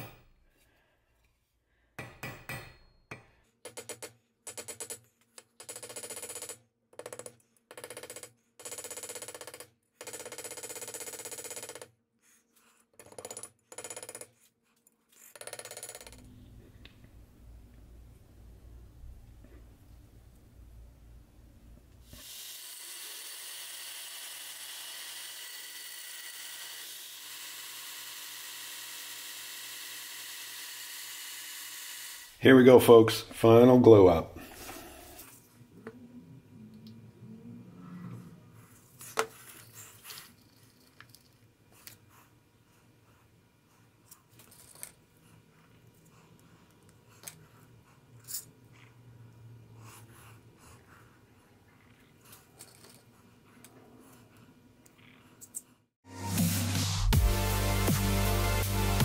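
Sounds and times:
hammer tapping metal: 0.0s - 0.3s, 2.0s - 4.9s
belt grinder grinding metal: 22.1s - 32.4s.

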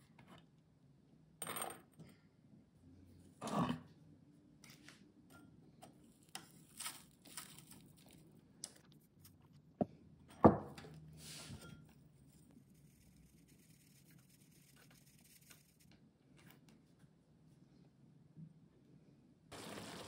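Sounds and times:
spice sifting through sieve: 12.3s - 15.9s.

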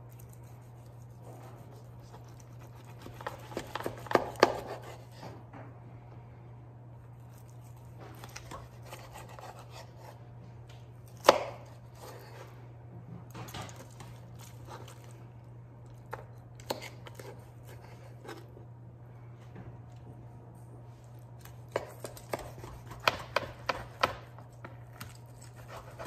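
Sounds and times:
knife cutting ribs: 0.1s - 5.3s, 7.1s - 10.2s, 11.0s - 12.6s, 16.1s - 18.6s, 21.4s - 26.0s.

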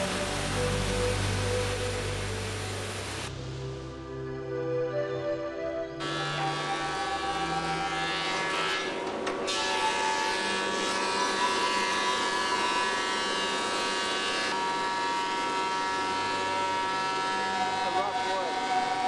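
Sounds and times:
thickness planer running: 6.0s - 19.0s.

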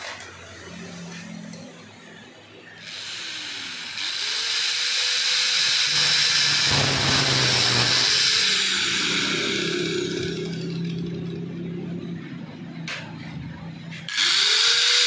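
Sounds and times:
angle grinder grinding metal: 2.8s - 11.4s, 14.0s - 15.0s.

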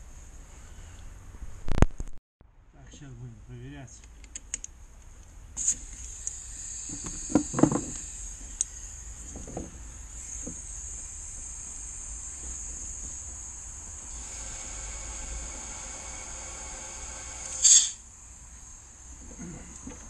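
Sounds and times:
compressed air hissing: 5.6s - 19.7s.

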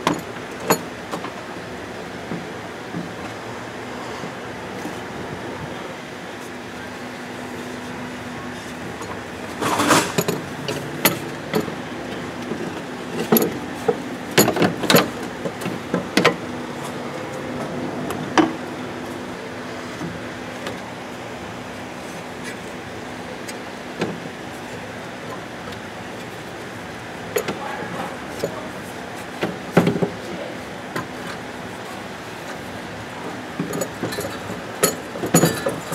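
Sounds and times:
steady background hum: 0.0s - 35.9s
metal clinks and knocks: 12.5s - 16.4s, 33.6s - 35.9s.

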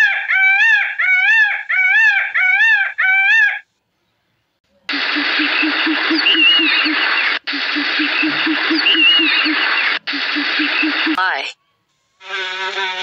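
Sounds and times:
peacock calling: 0.0s - 3.7s, 4.9s - 13.0s.

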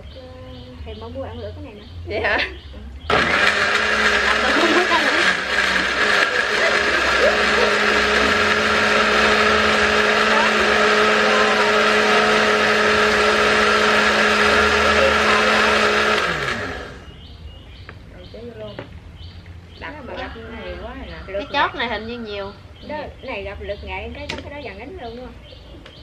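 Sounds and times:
electric blender running: 3.1s - 17.1s
motor winding down: 3.1s - 17.1s.

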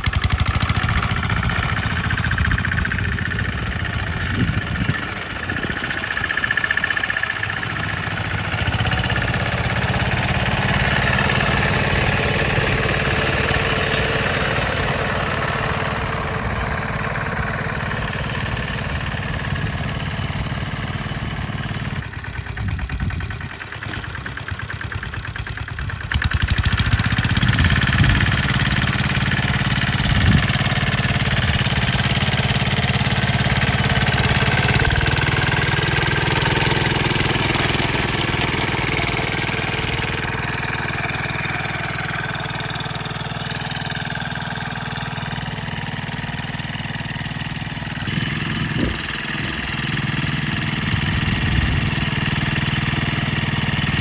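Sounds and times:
mower engine running: 0.0s - 54.0s
cutter bar mowing grass: 47.9s - 54.0s.

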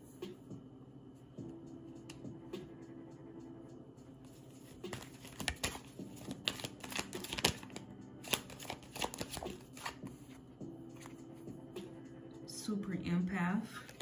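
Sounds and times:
cards shuffling: 4.6s - 11.2s, 13.8s - 14.0s.

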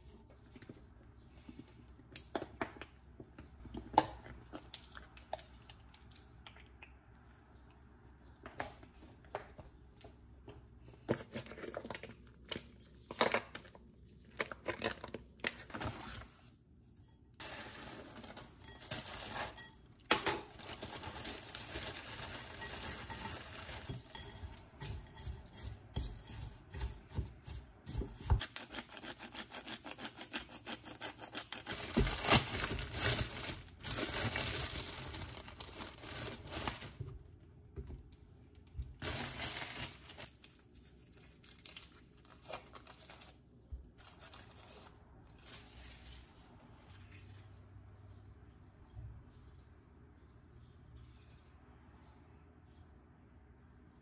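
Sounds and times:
rustling and crinkling packaging: 10.8s - 16.6s, 17.4s - 27.4s, 31.3s - 37.4s, 38.6s - 47.6s.

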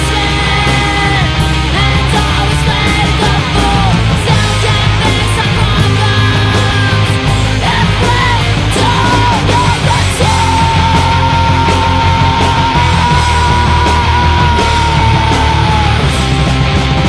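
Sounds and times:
punk band playing: 0.0s - 17.0s.

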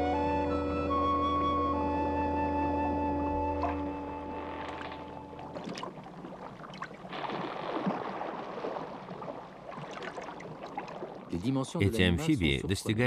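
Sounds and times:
flute music: 0.0s - 5.5s
water sloshing and gurgling: 2.7s - 11.6s
small clicks and splashes: 4.5s - 11.3s.

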